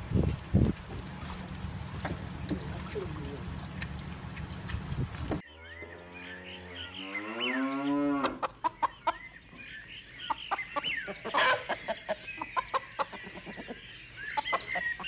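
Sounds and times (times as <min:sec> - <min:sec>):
small birds chirping: 0:02.0 - 0:15.0
cow mooing: 0:05.8 - 0:08.5
hens clucking: 0:08.2 - 0:09.2, 0:10.3 - 0:15.0.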